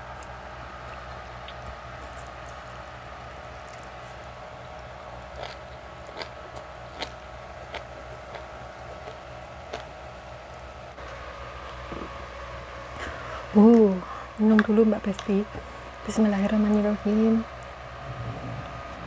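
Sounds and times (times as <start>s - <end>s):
low hum: 0.0s - 19.0s
person chewing: 5.1s - 10.0s.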